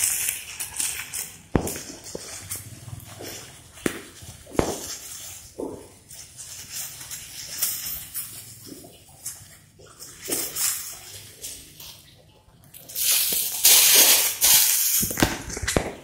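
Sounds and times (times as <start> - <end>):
plastic bags crinkling: 0.0 - 12.0, 12.8 - 16.0.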